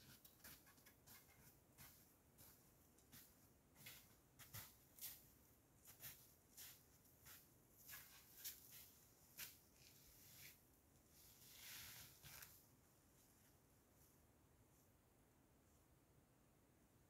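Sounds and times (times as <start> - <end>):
footsteps crunching in snow: 0.0 - 10.6
soft rustle: 0.0 - 15.0.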